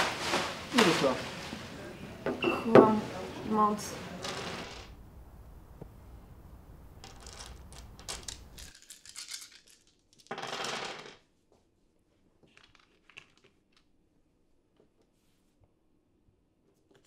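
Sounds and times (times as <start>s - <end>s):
steady low background noise: 0.0s - 8.7s
rustling rattle: 7.0s - 11.1s
cards and game pieces clicking: 7.0s - 11.2s.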